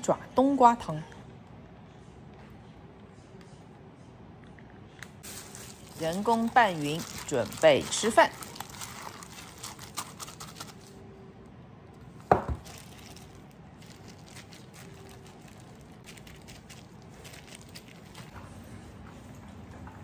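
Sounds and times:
plastic glove crinkling: 5.2 - 11.0, 12.4 - 18.4.

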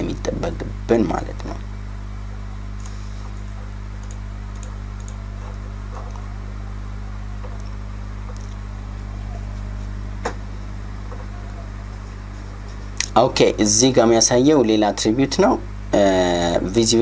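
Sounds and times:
low electrical hum: 0.0 - 17.0
computer mouse clicks: 4.0 - 6.2.

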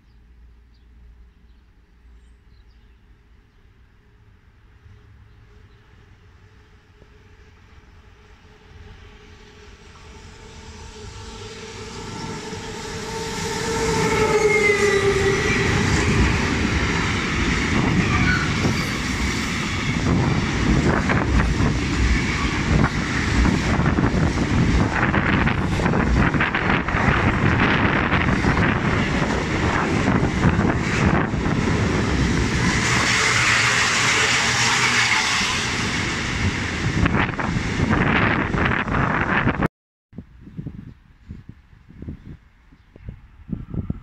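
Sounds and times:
train rumble: 0.0 - 39.7
locomotive humming tone: 3.1 - 37.4.

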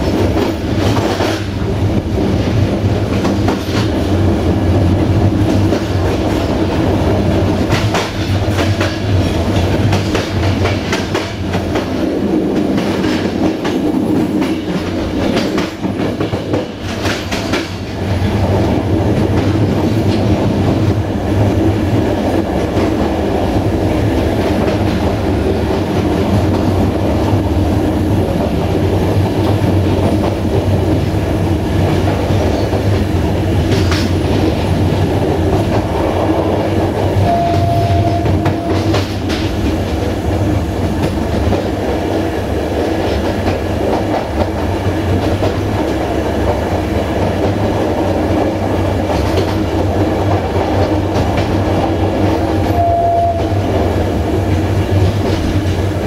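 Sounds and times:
clickety-clack over rail joints: 0.0 - 56.0
train wheels rumbling on rails: 0.0 - 56.0
short steady tone: 37.2 - 38.9.

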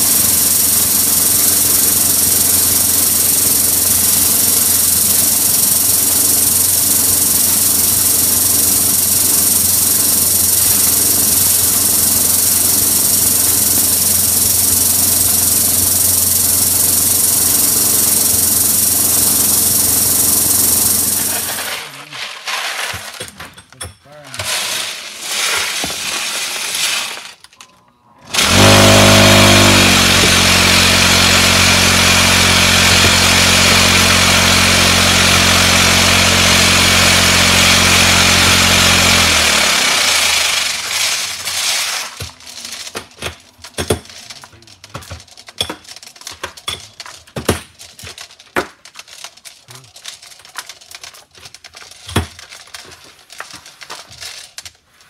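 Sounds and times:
motor-driven machine running: 0.0 - 21.8, 28.3 - 43.0.

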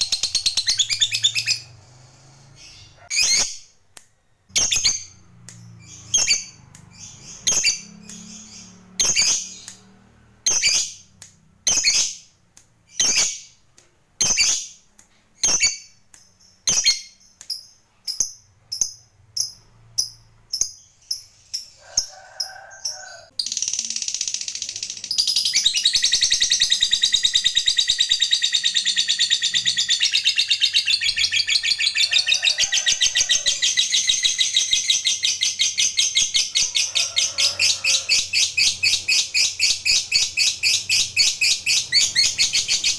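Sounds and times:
lovebird shrieking and chattering: 25.3 - 42.9.

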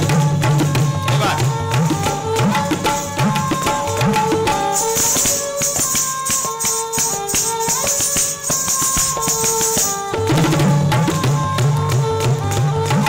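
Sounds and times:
tabla drumming: 0.0 - 13.0
ankle bells jingling: 1.0 - 10.6.

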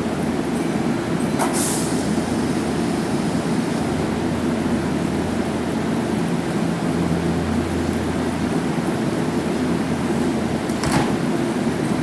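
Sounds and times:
short hiss of air: 1.4 - 2.2.

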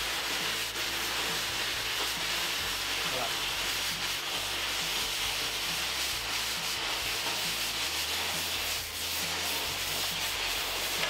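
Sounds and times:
cutting torch hissing: 0.0 - 11.0.

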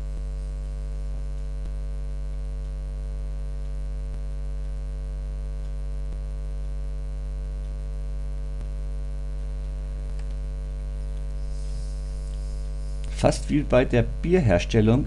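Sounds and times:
electrical mains hum: 0.0 - 15.0
faint clicks: 8.6 - 11.5, 12.1 - 13.2.

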